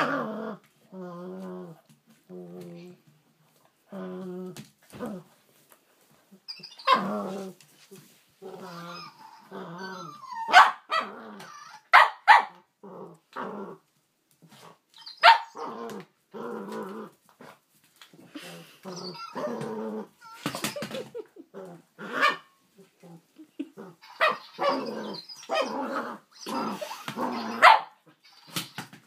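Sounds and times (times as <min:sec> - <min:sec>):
dog growling in play: 0:00.0 - 0:03.0, 0:03.9 - 0:05.4, 0:06.9 - 0:07.6, 0:08.4 - 0:11.8, 0:12.8 - 0:13.8, 0:15.5 - 0:20.4, 0:21.4 - 0:27.8
dog barking: 0:10.5 - 0:11.1, 0:11.9 - 0:12.6, 0:15.2 - 0:15.6, 0:27.6 - 0:28.0.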